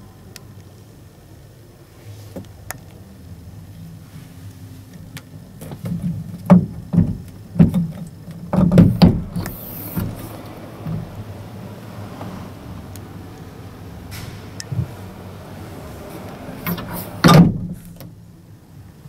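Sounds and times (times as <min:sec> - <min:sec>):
roof hatch knocking and thumping: 0:05.8 - 0:12.4, 0:14.1 - 0:18.1.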